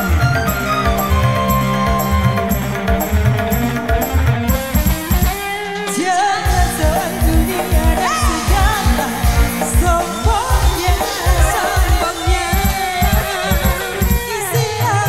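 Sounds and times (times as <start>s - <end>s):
live band music: 0.0s - 15.0s
woman singing: 5.8s - 15.0s.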